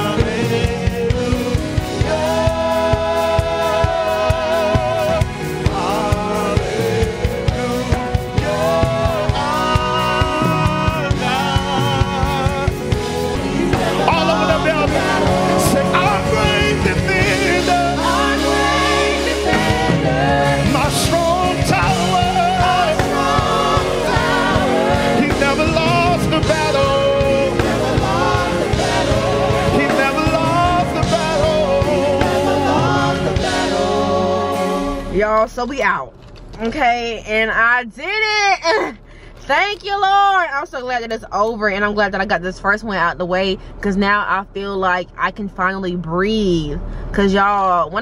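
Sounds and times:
choir singing worship song: 0:00.0 - 0:35.4
keyboard and band backing: 0:00.0 - 0:35.4.

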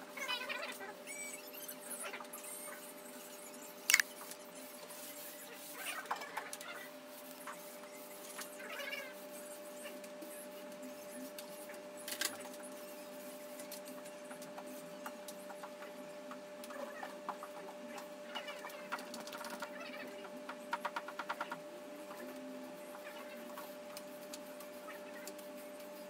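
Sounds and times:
paint roller rubbing on wall: 0:04.8 - 0:11.3.

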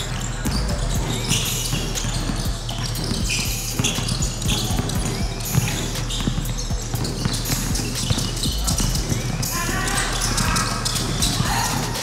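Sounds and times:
basketball bouncing on hardwood: 0:00.0 - 0:09.4
sneakers squeaking: 0:00.0 - 0:12.0.

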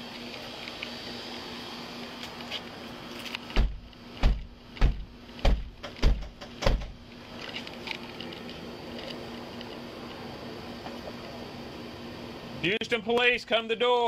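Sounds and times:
loud knocking on door: 0:03.6 - 0:07.0.

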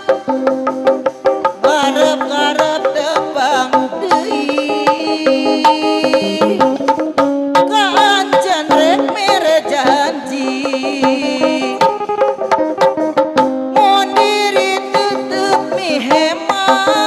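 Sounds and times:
hand drums: 0:00.0 - 0:17.0
steady held notes: 0:00.0 - 0:17.0
wavering melody line: 0:06.1 - 0:07.0.

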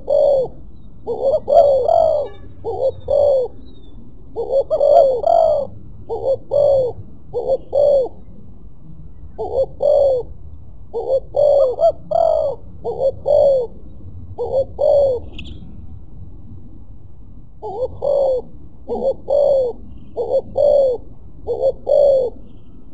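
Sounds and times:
dove cooing: 0:00.0 - 0:08.3, 0:09.4 - 0:10.3, 0:10.9 - 0:15.6, 0:17.6 - 0:22.6.

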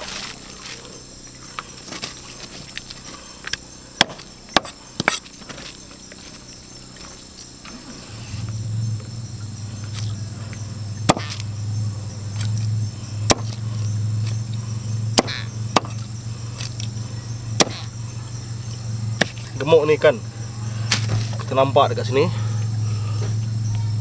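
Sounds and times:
steady low hum: 0:00.0 - 0:24.0
knife chopping fish on wood: 0:04.0 - 0:05.2, 0:11.1 - 0:11.4, 0:13.3 - 0:13.6, 0:15.2 - 0:16.0, 0:17.6 - 0:17.9.

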